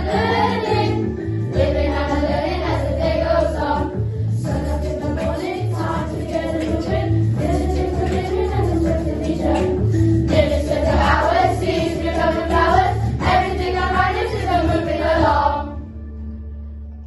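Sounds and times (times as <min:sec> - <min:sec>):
children's choir singing: 0:00.0 - 0:15.8.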